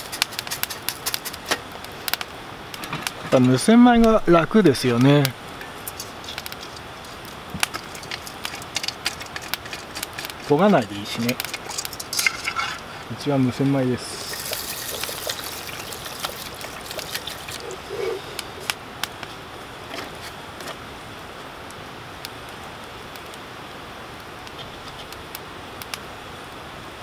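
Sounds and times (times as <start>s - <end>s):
campfire crackling and popping: 0.0s - 26.6s
water trickling into metal tin: 7.8s - 13.2s, 14.0s - 18.6s.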